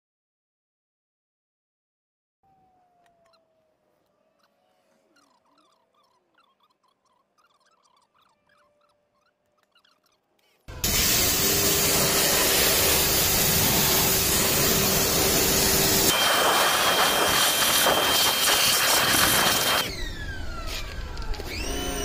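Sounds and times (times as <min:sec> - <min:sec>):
pressure washer machine hum: 0:10.7 - 0:20.0
machine winding down whine: 0:10.7 - 0:22.0
pressure washer jet hissing: 0:10.8 - 0:19.9.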